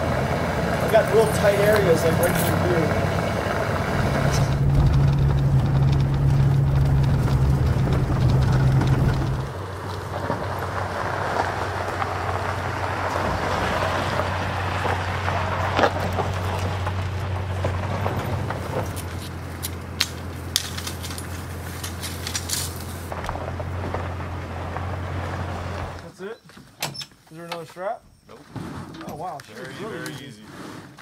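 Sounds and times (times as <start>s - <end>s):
low machine hum: 0.0s - 9.5s
pickup truck engine running: 0.0s - 26.0s.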